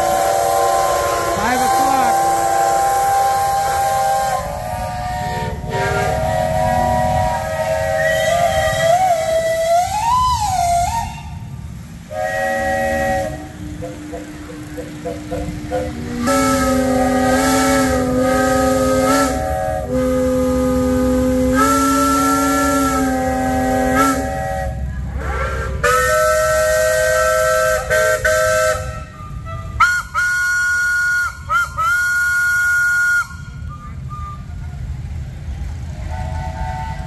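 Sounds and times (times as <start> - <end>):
steam hissing: 0.0 - 29.1
steam whistle blasts: 0.0 - 34.6, 35.9 - 37.0.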